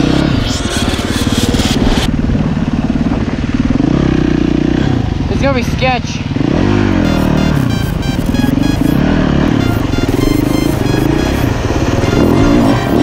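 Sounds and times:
dirt bike engine revving: 0:00.0 - 0:13.0
background music with steady beat: 0:07.1 - 0:13.0.

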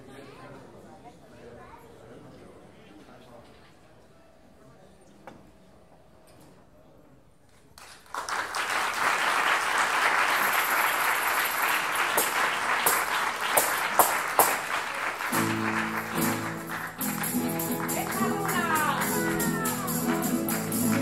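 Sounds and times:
audience applause: 0:07.8 - 0:21.0
plucked string chords: 0:15.4 - 0:21.0.

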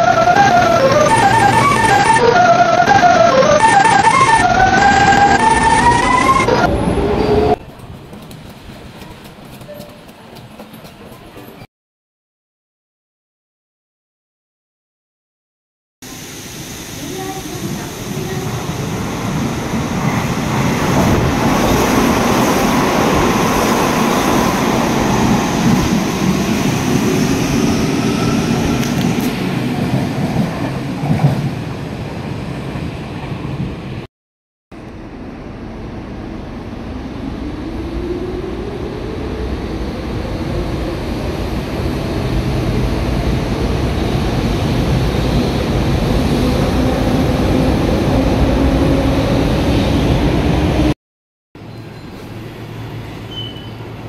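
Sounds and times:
train motors and wheels running: 0:06.7 - 0:11.6.

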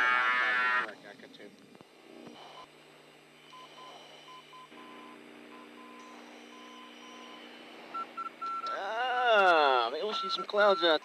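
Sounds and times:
steady low hum: 0:00.1 - 0:11.0
short electronic beeps: 0:03.5 - 0:08.7, 0:10.0 - 0:11.0.

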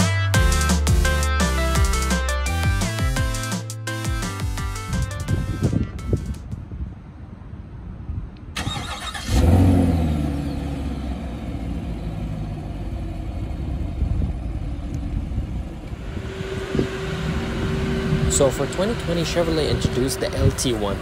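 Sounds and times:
car engine starting and revving: 0:08.5 - 0:21.0
car engine idling: 0:10.4 - 0:21.0.

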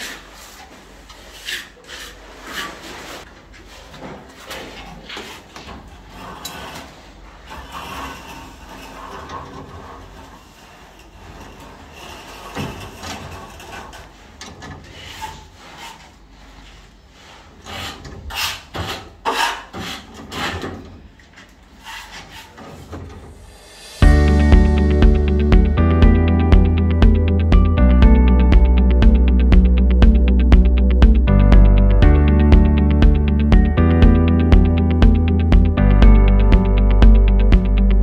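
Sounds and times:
rubbing and scraping on pipe thread: 0:00.0 - 0:20.7
music: 0:23.9 - 0:38.0.

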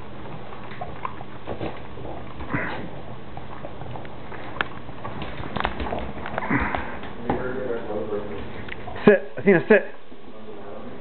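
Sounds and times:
dogs licking and smacking: 0:00.0 - 0:06.7.

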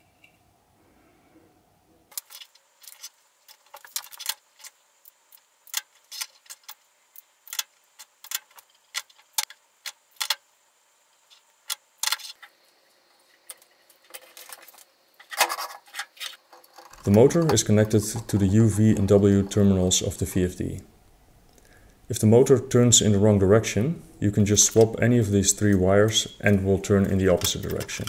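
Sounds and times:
wires clicking and rattling: 0:02.1 - 0:10.4, 0:11.3 - 0:20.8, 0:25.7 - 0:28.0.

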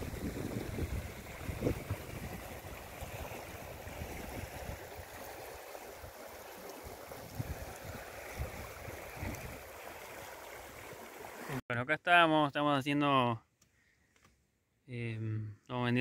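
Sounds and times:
wind gusting on microphone: 0:00.0 - 0:05.2, 0:07.1 - 0:09.8.

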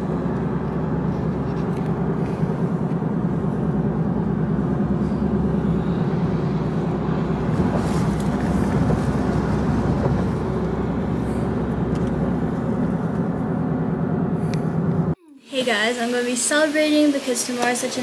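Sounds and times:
car passing: 0:00.0 - 0:15.1
road and engine noise inside car: 0:00.0 - 0:15.2.

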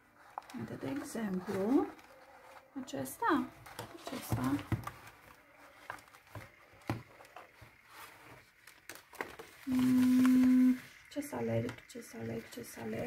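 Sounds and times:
paper pages rustling: 0:00.2 - 0:02.8, 0:03.4 - 0:11.0
person humming: 0:09.7 - 0:10.8.

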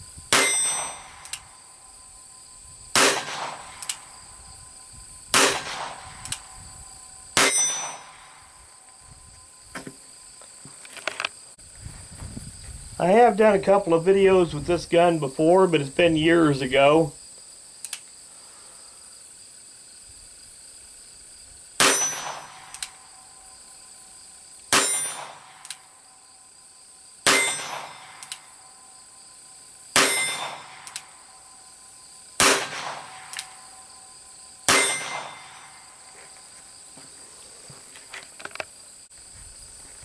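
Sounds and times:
revolver shots with metallic ring: 0:00.3 - 0:01.8, 0:02.9 - 0:04.2, 0:05.3 - 0:08.6, 0:21.8 - 0:23.2, 0:24.7 - 0:25.9, 0:27.2 - 0:28.9, 0:29.9 - 0:31.6, 0:32.4 - 0:36.0
revolver hammer cocking click: 0:03.8 - 0:04.0.

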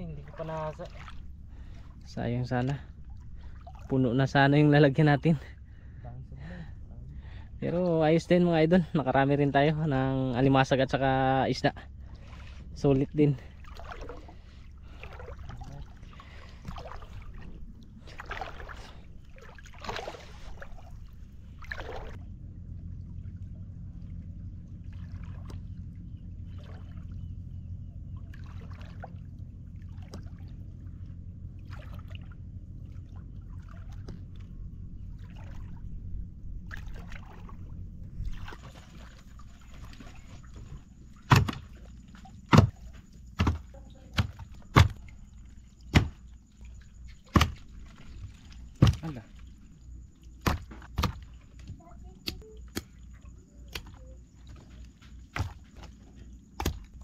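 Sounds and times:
splashing steps wading through water: 0:00.0 - 0:04.4, 0:11.9 - 0:22.2, 0:23.2 - 0:27.5, 0:28.1 - 0:57.0
steady low rumble: 0:00.0 - 0:57.0
sharp knocks on plastic crate: 0:41.3 - 0:41.7, 0:42.5 - 0:45.0, 0:45.9 - 0:46.2, 0:48.8 - 0:49.1.

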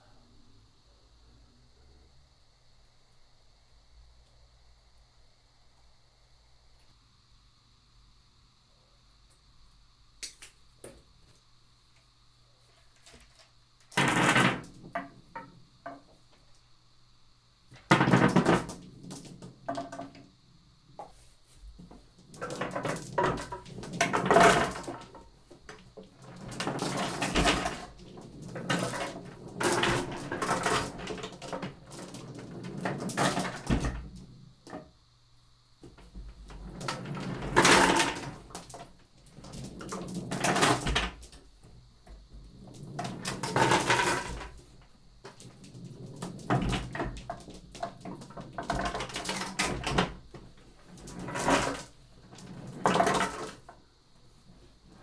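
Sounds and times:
marbles rolling on paper: 0:17.7 - 0:20.1, 0:22.2 - 0:34.2, 0:36.4 - 0:41.4, 0:42.6 - 0:44.6, 0:45.2 - 0:53.7.

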